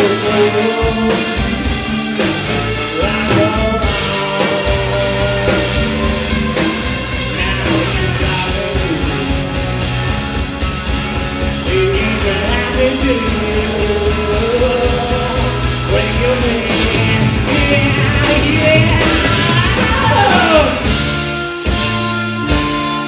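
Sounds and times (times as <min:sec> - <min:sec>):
trombone: 0:00.0 - 0:08.7
person singing: 0:00.0 - 0:09.8, 0:11.6 - 0:21.0
live rock band playing: 0:00.0 - 0:23.0.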